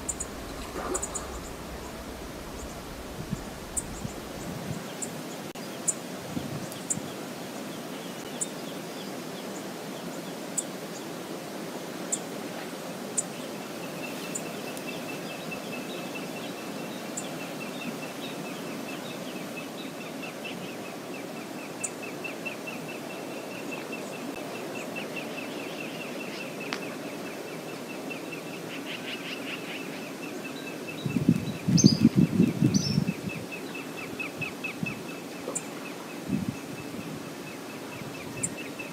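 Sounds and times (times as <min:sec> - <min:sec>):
loud low rumble: 0:00.0 - 0:04.9
background hiss: 0:00.0 - 0:38.9.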